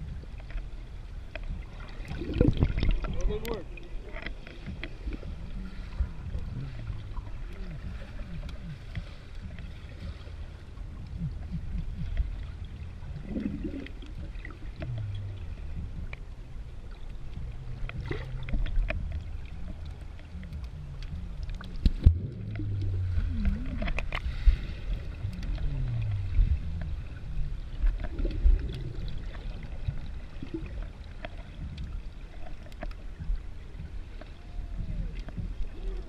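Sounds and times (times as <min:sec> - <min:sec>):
underwater rumble: 0:00.0 - 0:36.0
water splash: 0:01.7 - 0:05.2
sharp underwater clicks: 0:16.8 - 0:27.0, 0:27.7 - 0:36.0.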